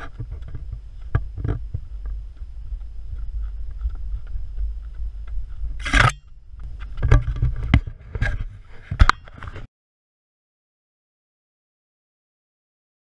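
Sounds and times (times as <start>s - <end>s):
wind rumble on microphone: 0.0s - 9.7s.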